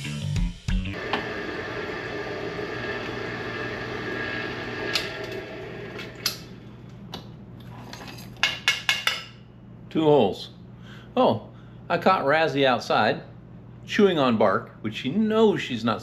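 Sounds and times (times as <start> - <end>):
electric drill boring through metal: 1.0 - 6.4.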